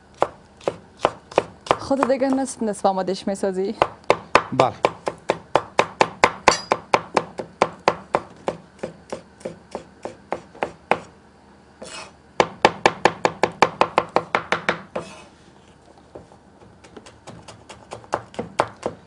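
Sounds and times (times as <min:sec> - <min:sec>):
cleaver chopping on wooden board: 0:00.2 - 0:02.5, 0:03.8 - 0:11.1, 0:16.8 - 0:19.0.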